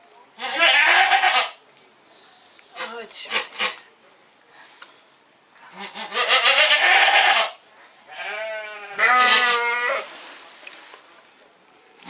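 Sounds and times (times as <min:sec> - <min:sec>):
goat bleating loudly: 0:00.4 - 0:01.6, 0:05.7 - 0:10.1.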